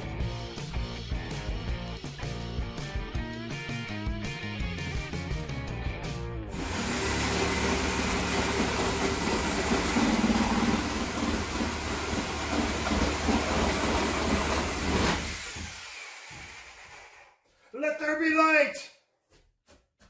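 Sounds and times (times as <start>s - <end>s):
reciprocating saw cutting plywood: 6.5s - 17.4s.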